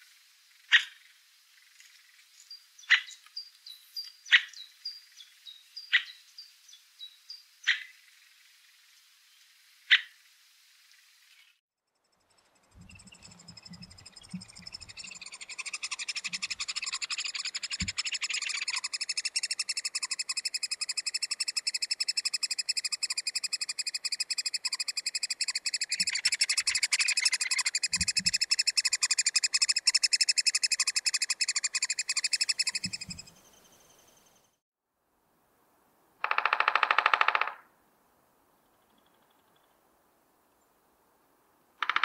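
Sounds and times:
woodpecker buzzing chatter: 12.7s - 33.3s.

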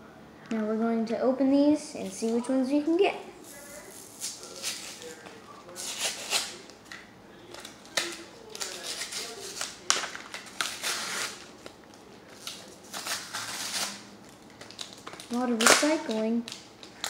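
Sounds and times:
foil wrapper tearing and crinkling: 3.9s - 5.2s, 5.8s - 6.6s, 7.6s - 17.0s.

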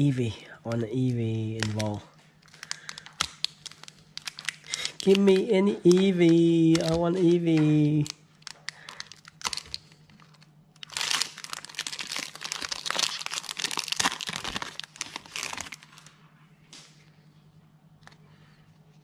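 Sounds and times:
foil wrapper crinkling: 1.0s - 16.2s.

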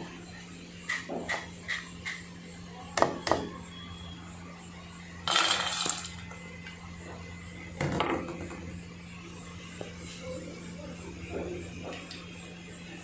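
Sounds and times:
steady low hum: 0.0s - 13.0s
fries clattering into metal bowl: 5.3s - 6.2s.

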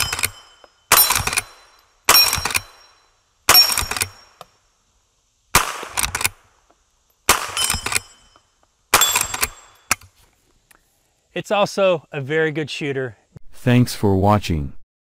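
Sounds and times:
rifle shots: 0.0s - 2.9s, 3.5s - 4.2s, 5.5s - 6.4s, 7.3s - 8.2s, 8.9s - 9.9s
steel plate target ringing: 0.0s - 4.4s, 7.3s - 10.0s.

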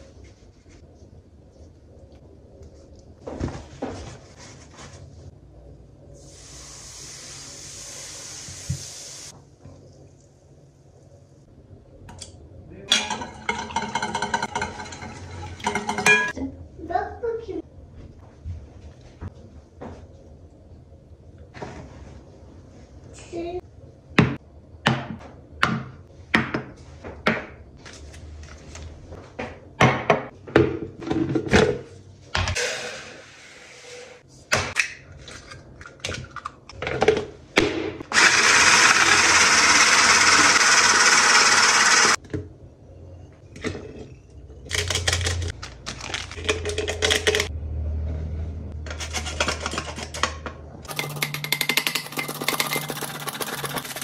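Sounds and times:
bowls and lids clinking: 12.9s - 16.4s, 50.9s - 54.0s
electric mixer running: 38.1s - 42.2s.

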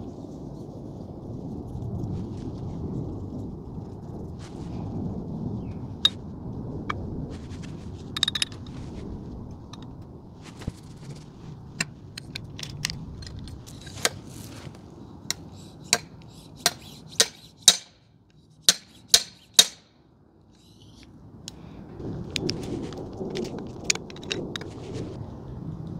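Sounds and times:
metal clinks and knocks: 8.1s - 8.8s.

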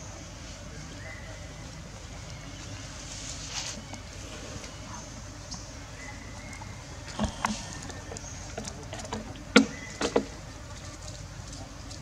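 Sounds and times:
dry leaves crackling: 1.2s - 5.2s.

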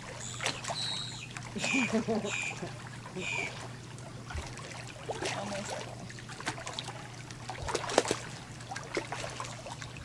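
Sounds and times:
pool water splashing: 0.0s - 10.0s
steady low hum: 0.0s - 10.0s.

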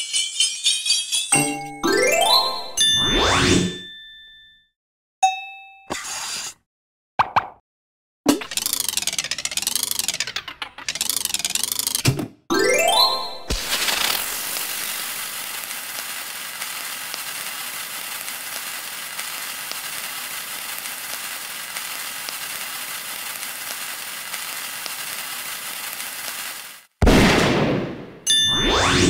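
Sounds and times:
scratchy hiss with ticks: 13.7s - 26.9s.

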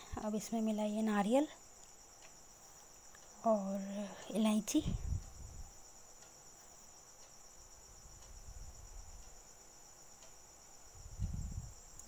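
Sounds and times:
crickets trilling: 0.0s - 12.0s
faint low rumbles: 3.1s - 6.0s, 10.8s - 12.0s.

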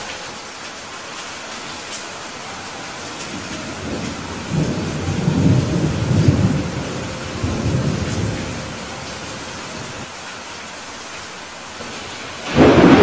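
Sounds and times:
steady rain hiss: 0.0s - 13.0s
low roll of thunder: 3.3s - 10.0s, 11.9s - 13.0s.

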